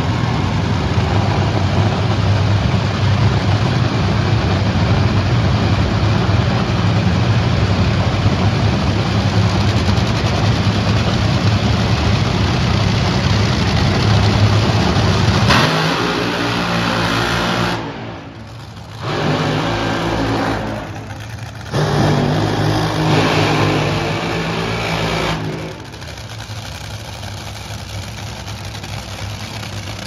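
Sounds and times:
dragster engines roaring: 0.0 - 30.0.

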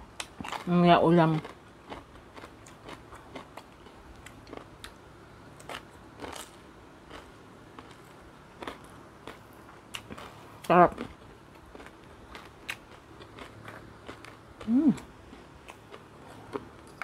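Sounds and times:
crunchy chewing: 0.2 - 17.0.

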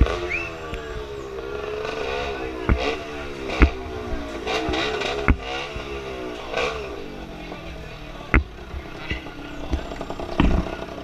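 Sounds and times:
motorcycle engine revving: 0.0 - 11.0
sharp knocks: 2.6 - 6.0.

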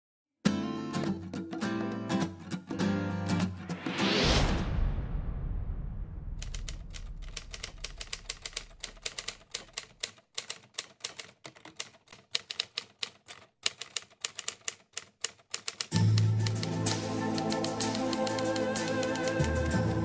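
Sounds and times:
typewriter keys clacking: 6.4 - 20.0.

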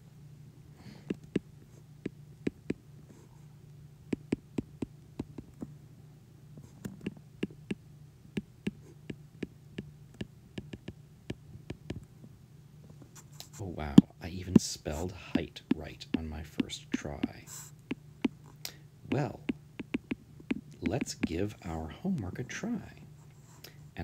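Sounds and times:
faint low hum: 0.0 - 24.0
stylus tapping on glass screen: 19.5 - 20.2.

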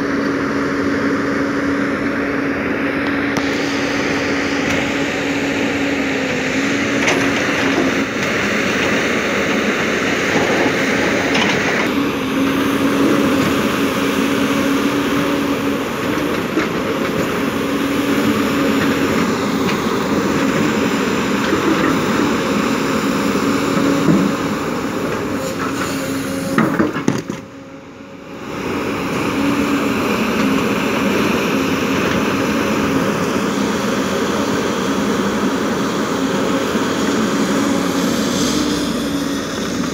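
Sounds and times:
heavy diesel engines running: 0.0 - 39.9.

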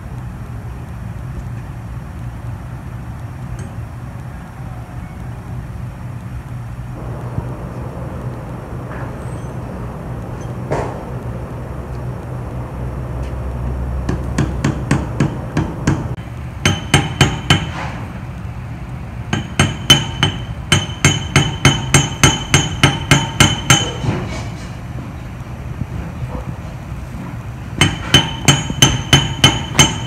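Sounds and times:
steady low hum: 0.0 - 30.0
hammer tapping metal: 14.1 - 17.8, 19.3 - 24.1, 27.8 - 30.0
ringing metallic hammer strikes: 16.6 - 17.7, 19.3 - 24.0, 27.8 - 30.0.

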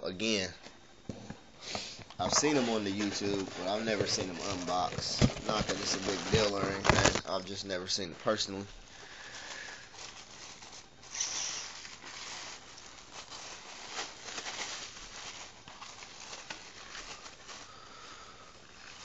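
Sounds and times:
packaging rustling and crinkling: 1.7 - 19.0.

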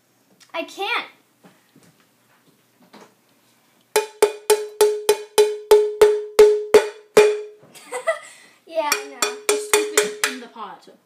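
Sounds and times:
ceramic bowl being struck: 4.0 - 7.6, 8.9 - 10.4.

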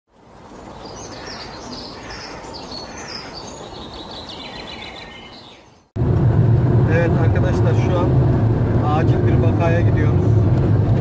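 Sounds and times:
songbird chirping and trilling: 0.2 - 6.0.

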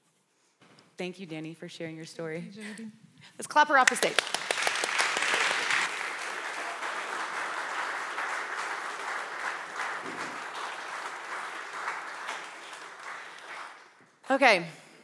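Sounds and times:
congregation applauding: 3.8 - 14.1.

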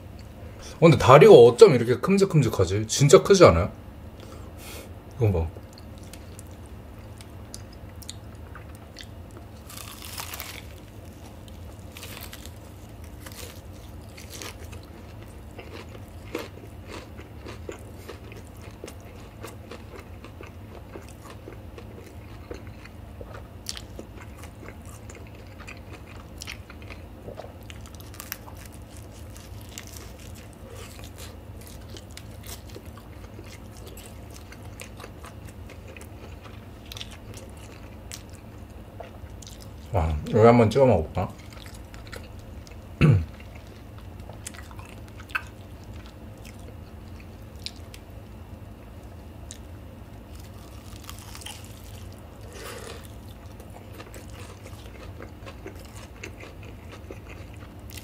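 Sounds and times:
steady low hum: 0.0 - 58.0
chewing and crunching: 5.5 - 40.4, 41.2 - 58.0
crunchy bite into fried chicken: 7.2 - 38.4, 50.2 - 58.0.

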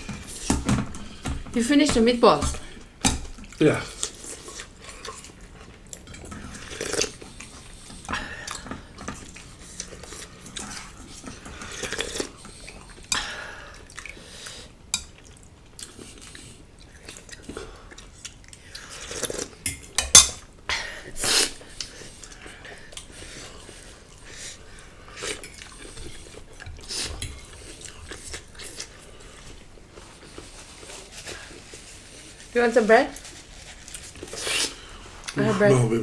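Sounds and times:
chewing: 2.6 - 20.5, 21.3 - 32.4, 33.1 - 35.4
cutlery clinking on plates: 19.6 - 20.4.

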